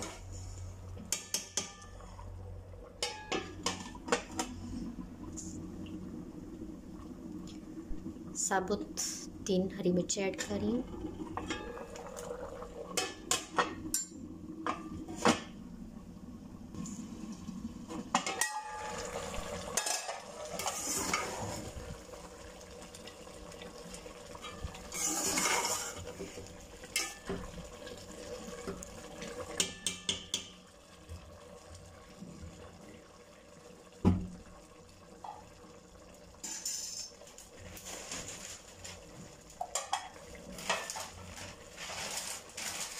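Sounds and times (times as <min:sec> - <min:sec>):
spoon scraping metal pot: 0:24.4 - 0:26.0.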